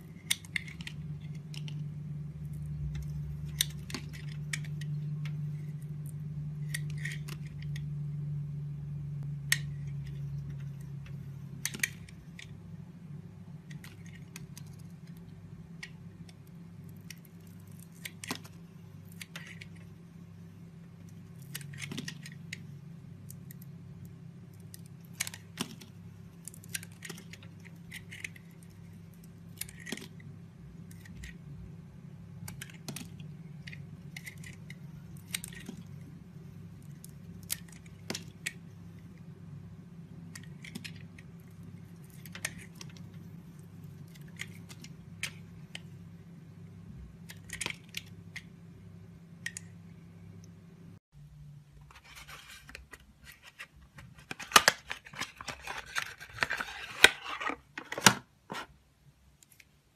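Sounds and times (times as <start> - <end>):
steady low hum: 0.0 - 59.9
knife cutting soap cracks: 0.2 - 5.2, 6.0 - 7.9, 13.7 - 19.9, 24.5 - 30.2, 32.4 - 35.9.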